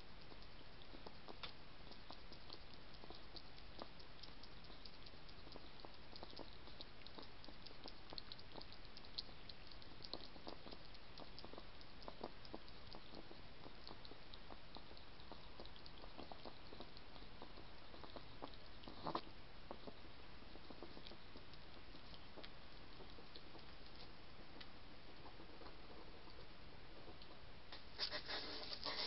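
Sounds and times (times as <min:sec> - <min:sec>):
hedgehog eating clicks and smacks: 0:00.0 - 0:29.0
steady hiss: 0:12.6 - 0:29.0.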